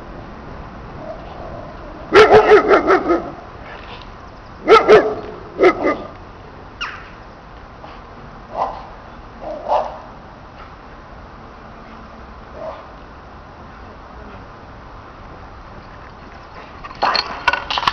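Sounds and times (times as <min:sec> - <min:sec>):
dog barking: 0:02.1 - 0:03.4, 0:04.6 - 0:06.1, 0:08.5 - 0:10.1, 0:12.6 - 0:12.9.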